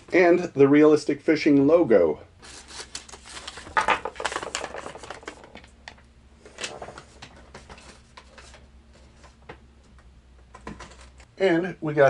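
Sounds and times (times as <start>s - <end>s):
paper rustling and crinkling: 2.4s - 5.8s, 6.5s - 9.4s.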